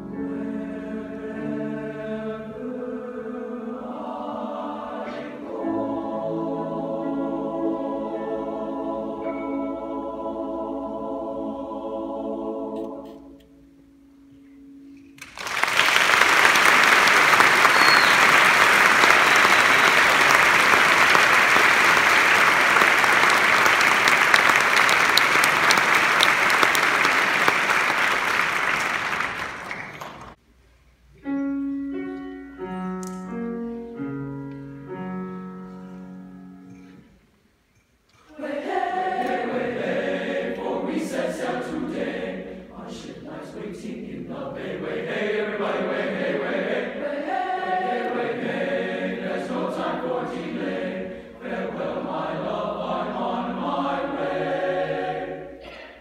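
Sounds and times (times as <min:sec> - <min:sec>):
boys' choir singing: 0:00.2 - 0:13.4, 0:16.0 - 0:30.2, 0:38.3 - 0:55.9
piano playing slow notes: 0:12.8 - 0:15.4, 0:31.2 - 0:37.3
audience applauding: 0:15.2 - 0:30.4.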